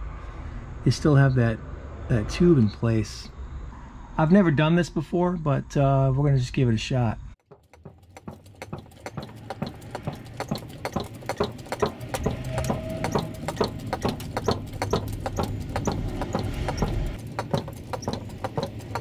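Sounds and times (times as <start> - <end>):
hydraulic ram pump clicking: 7.4 - 19.0
brief squeak: 12.1 - 17.1.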